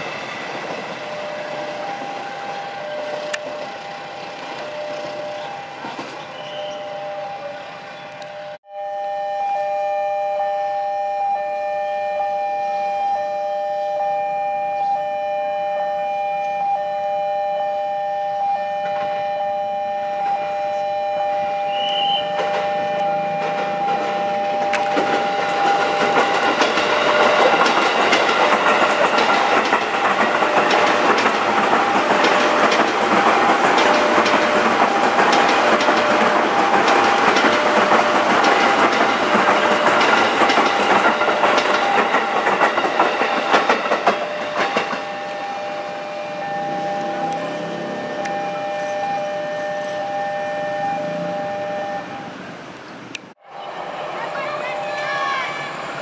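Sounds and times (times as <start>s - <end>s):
electric train passing: 0.0s - 56.0s
level crossing two-tone ringing: 8.7s - 38.9s, 39.8s - 52.2s
train wheels clattering over rail joints: 21.8s - 45.3s.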